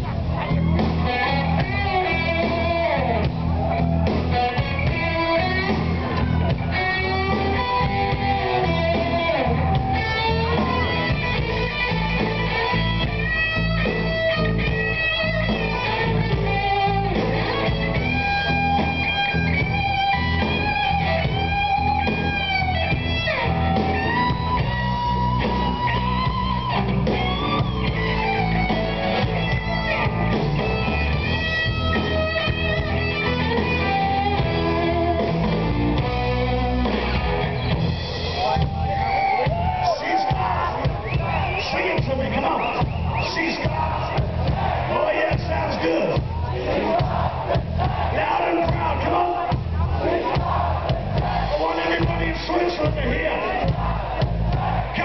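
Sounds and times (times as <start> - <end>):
electric guitar lead: 0.0 - 41.2
live rock band playing: 0.0 - 55.0.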